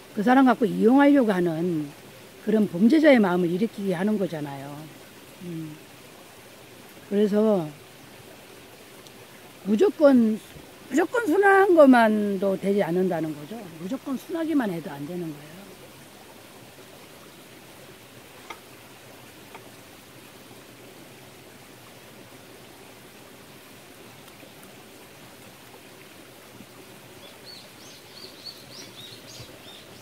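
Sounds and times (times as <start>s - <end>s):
mountain stream rushing: 0.0s - 30.0s
small bird chirping: 27.2s - 30.0s.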